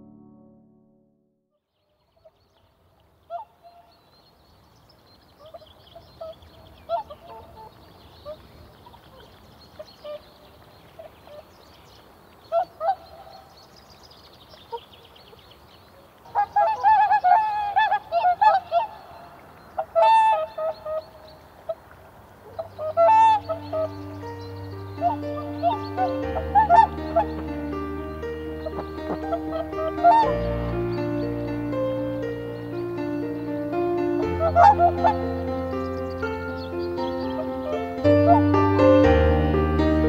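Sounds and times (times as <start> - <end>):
swans honking: 5.4 - 11.5, 12.5 - 13.5, 16.1 - 40.0.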